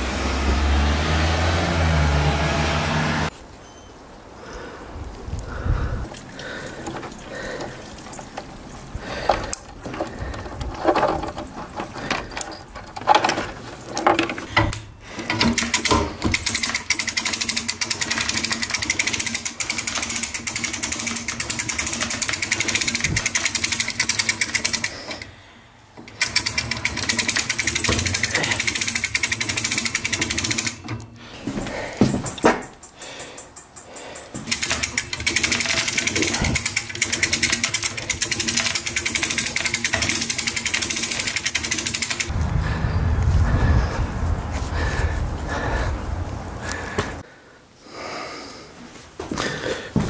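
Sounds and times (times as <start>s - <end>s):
winch reeling in steel cable: 6.8s - 31.0s, 33.4s - 42.4s
rapid ratchet clicking: 15.3s - 25.3s, 26.0s - 30.9s, 32.7s - 42.4s.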